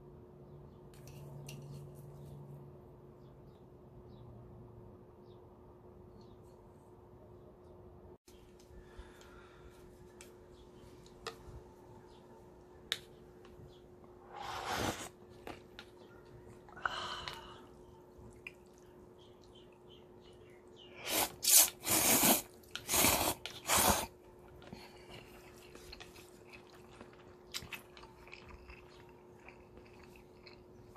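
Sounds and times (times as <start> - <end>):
slurping noodles: 14.2 - 15.2, 21.0 - 24.2.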